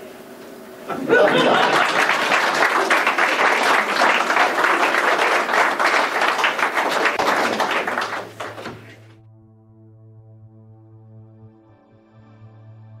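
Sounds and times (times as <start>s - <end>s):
audience applauding: 0.9s - 9.1s
low musical drone: 9.0s - 13.0s.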